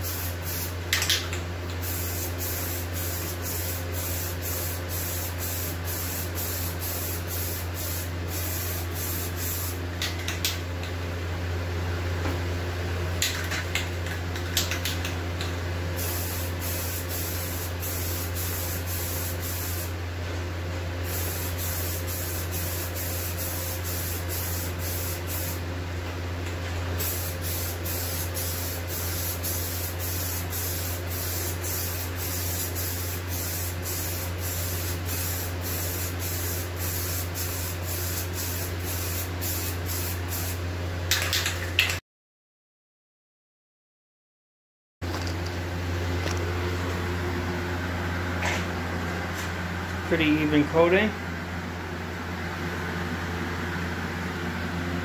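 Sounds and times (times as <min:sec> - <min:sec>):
steady low hum: 0:00.0 - 0:40.6, 0:45.1 - 0:55.0
aerosol can spraying hiss: 0:01.9 - 0:09.8, 0:16.0 - 0:19.9, 0:27.0 - 0:40.6.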